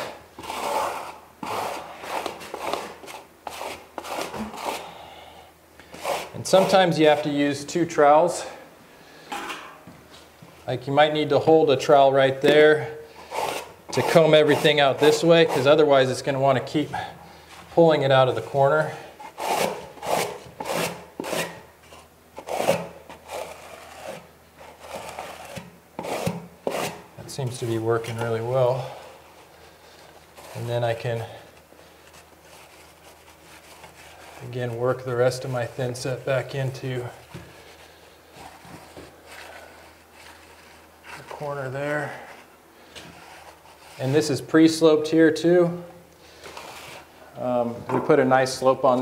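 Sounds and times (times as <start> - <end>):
trowel scraping membrane: 0.0 - 5.0, 5.9 - 7.3, 12.4 - 16.2, 18.4 - 29.0.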